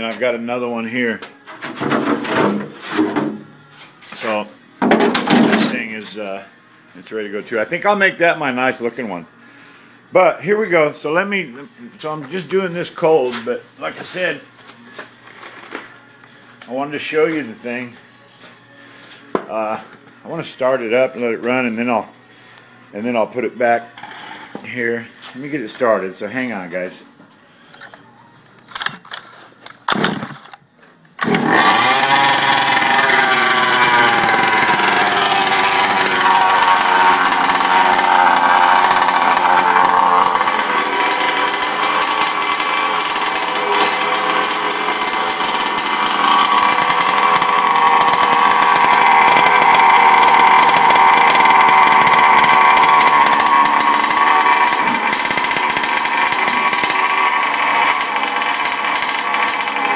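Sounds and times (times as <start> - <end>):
two-stroke engine starting and running: 31.2 - 59.9.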